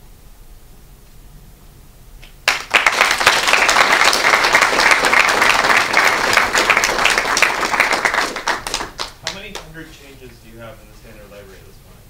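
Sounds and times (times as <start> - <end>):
audience applauding: 2.4 - 9.8.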